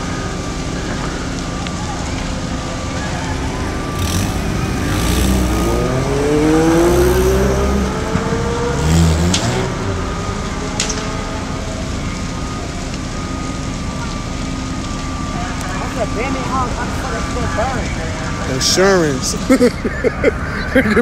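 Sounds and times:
car engine revving: 0:03.1 - 0:12.6.

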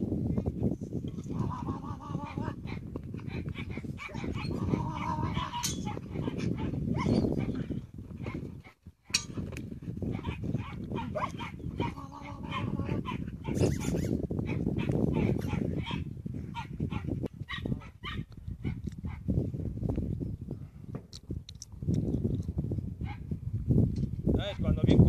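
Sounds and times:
dog barking: 0:02.3 - 0:07.7, 0:10.1 - 0:13.6, 0:14.4 - 0:19.2, 0:23.0 - 0:23.2.

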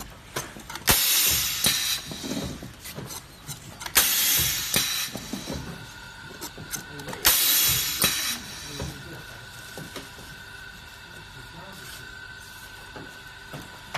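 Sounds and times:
air hiss bursts: 0:00.8 - 0:02.6, 0:03.9 - 0:05.9, 0:07.2 - 0:10.4.

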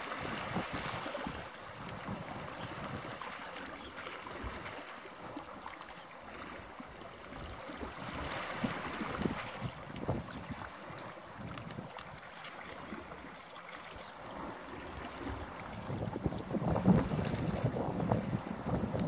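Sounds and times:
wind buffeting microphone: 0:08.0 - 0:11.9, 0:14.3 - 0:19.0.

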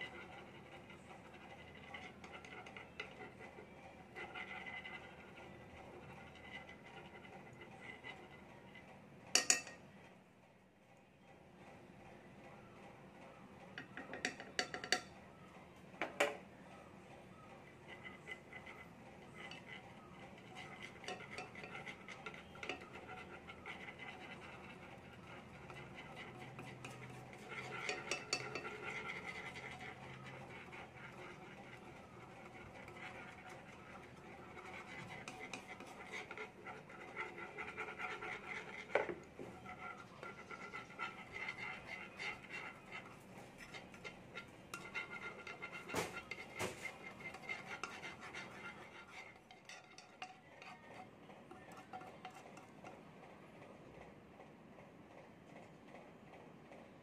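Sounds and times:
stick scraping a frying pan: 0:00.0 - 0:09.8, 0:17.6 - 0:53.0.

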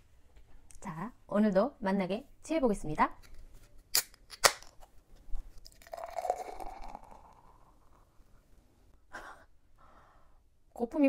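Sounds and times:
beer pouring and foaming: 0:05.6 - 0:08.0.

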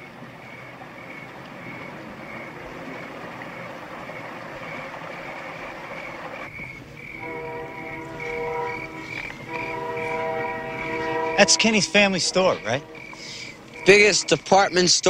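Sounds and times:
night insects chirping: 0:00.0 - 0:15.0
horn-like chord: 0:07.2 - 0:14.7.

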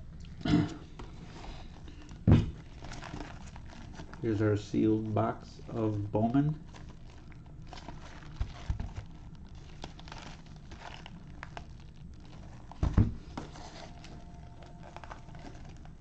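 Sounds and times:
plastic shrink wrap crinkling: 0:00.8 - 0:16.0
thump: 0:02.3 - 0:02.5, 0:12.8 - 0:13.2.

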